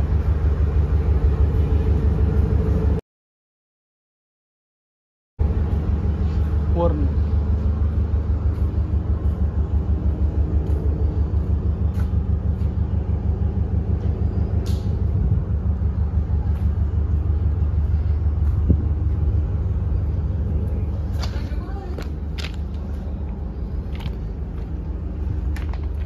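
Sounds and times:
freight train rolling past: 0.0 - 3.0.

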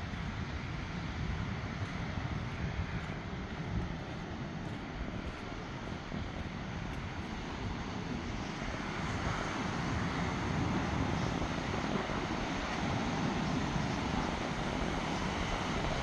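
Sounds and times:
wind buffeting microphone: 0.0 - 16.0
ocean surf breaking: 6.4 - 16.0.

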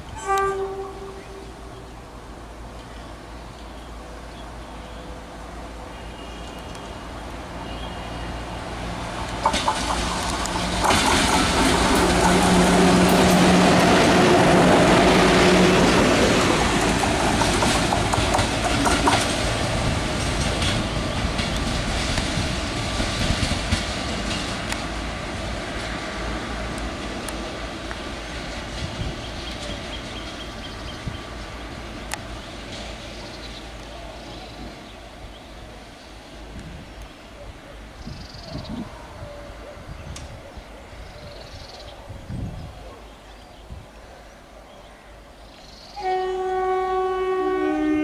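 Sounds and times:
locomotive wheels rumbling on rail: 0.0 - 43.9
wheels clacking over rail joints: 8.7 - 34.9.

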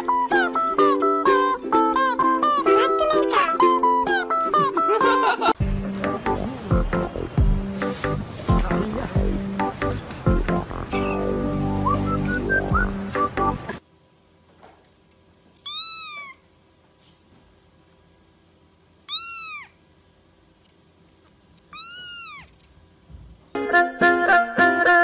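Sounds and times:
music: 0.0 - 13.8, 23.5 - 25.0
kitten meowing: 15.7 - 16.4, 19.1 - 19.8, 21.7 - 22.6.

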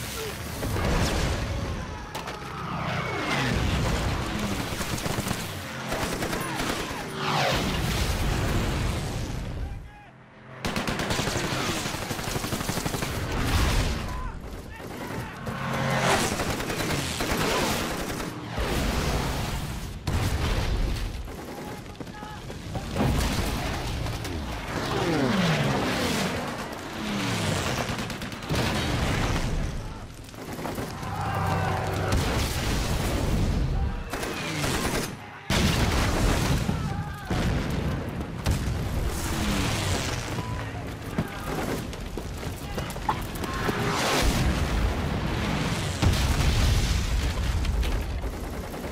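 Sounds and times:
gunfire: 3.8 - 7.6, 10.6 - 18.8, 34.0 - 44.6
machine-gun fire: 3.9 - 7.5, 10.6 - 18.8, 25.4 - 33.2, 34.0 - 36.7, 47.3 - 48.9.

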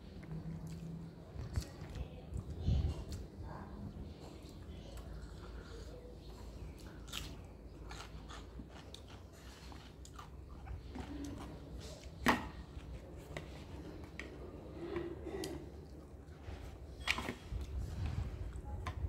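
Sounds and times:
chewing and mouth clicks: 0.0 - 3.4, 4.1 - 14.4.

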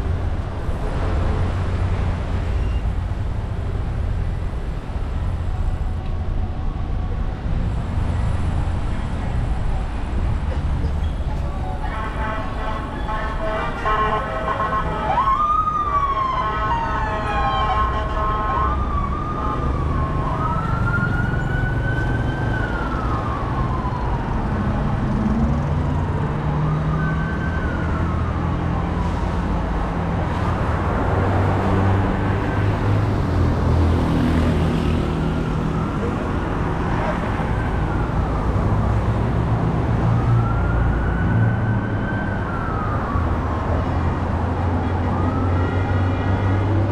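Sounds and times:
street traffic rumble: 0.0 - 46.9
emergency siren wailing: 5.2 - 7.9, 11.4 - 30.4, 31.5 - 46.9.

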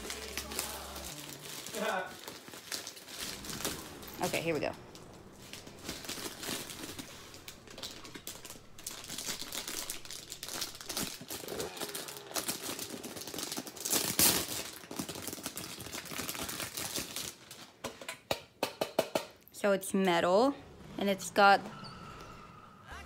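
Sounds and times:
plastic packaging crinkling: 0.0 - 18.0.

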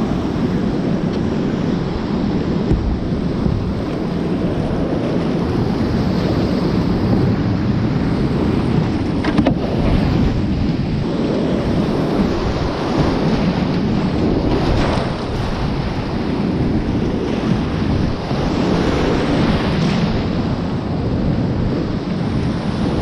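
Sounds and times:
paddle striking: 1.9 - 5.4, 8.4 - 10.6.

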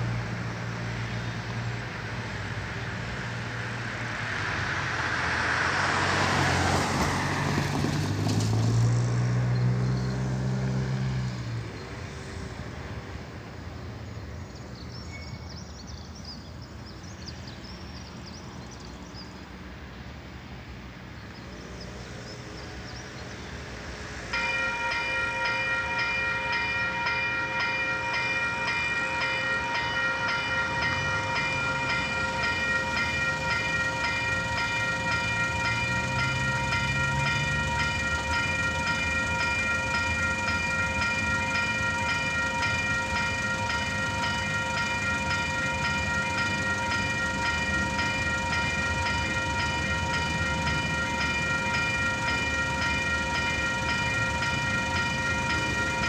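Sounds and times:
street traffic rumble: 0.0 - 56.0
level-crossing warning bell: 24.0 - 56.0.

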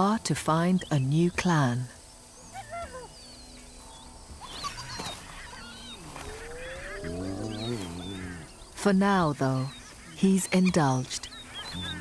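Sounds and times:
small birds chirping: 0.0 - 12.0.

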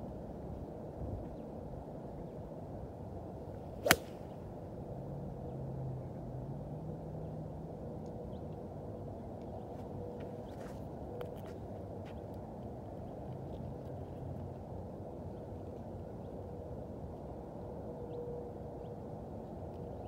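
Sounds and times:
golf club striking ball: 3.8 - 4.3.

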